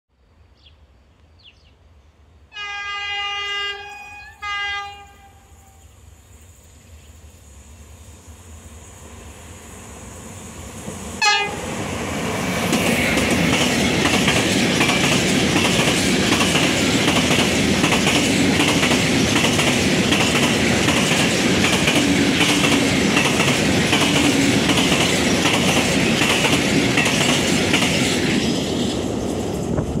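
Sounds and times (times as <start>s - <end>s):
train horn blasts: 2.5s - 5.9s, 11.2s - 11.7s.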